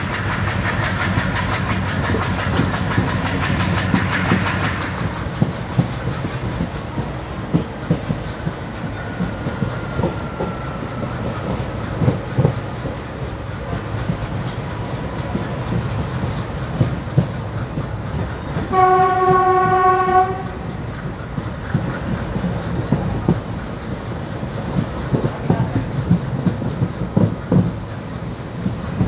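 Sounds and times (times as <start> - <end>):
train low rumble: 0.0 - 29.0
wheels clattering over rail joints: 0.0 - 29.0
locomotive horn blast: 18.7 - 20.8.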